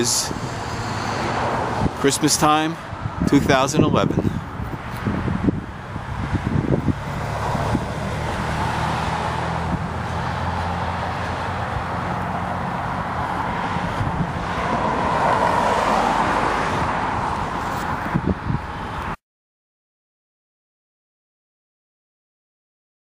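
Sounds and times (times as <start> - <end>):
car passing with tyre noise: 0.0 - 3.6, 4.2 - 19.2
vehicle engine humming: 0.0 - 19.2.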